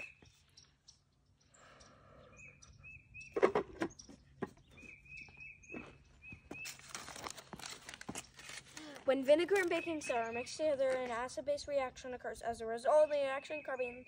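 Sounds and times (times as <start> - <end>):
bird chirping: 0.0 - 6.9, 9.3 - 14.0
shoes scuffing on concrete: 4.1 - 8.6
paper rustling: 6.6 - 9.8.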